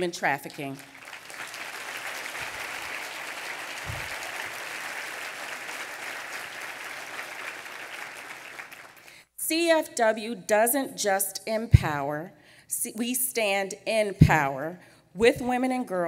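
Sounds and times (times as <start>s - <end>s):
audience applauding: 0.7s - 9.1s.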